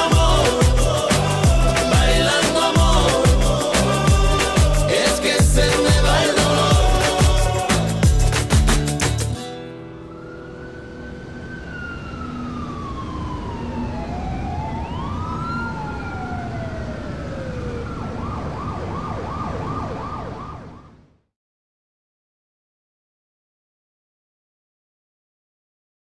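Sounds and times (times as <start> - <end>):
police sirens wailing: 0.0 - 7.8, 9.9 - 21.0.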